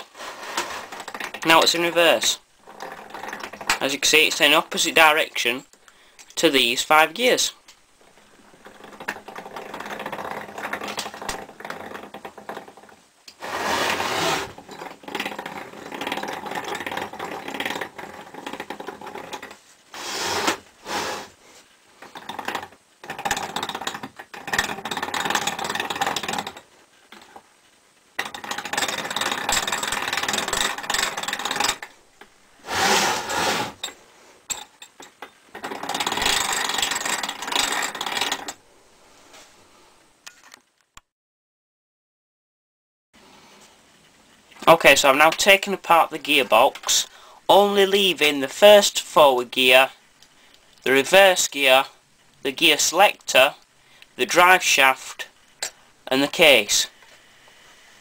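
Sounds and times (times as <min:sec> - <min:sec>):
gearbox gears meshing: 0:22.0 - 0:26.6, 0:28.2 - 0:38.6.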